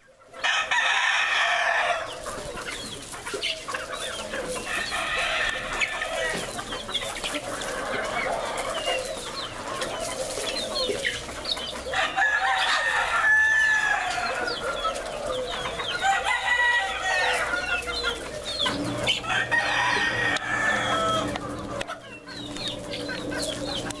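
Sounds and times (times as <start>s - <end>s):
chickens clucking: 0.0s - 24.0s
rooster crowing: 0.4s - 2.2s, 4.7s - 6.5s, 11.9s - 21.8s.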